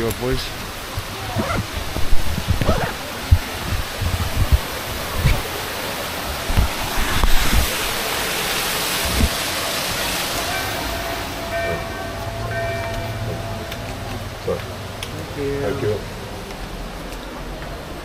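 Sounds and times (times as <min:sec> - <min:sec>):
wind buffeting microphone: 0:00.0 - 0:09.5.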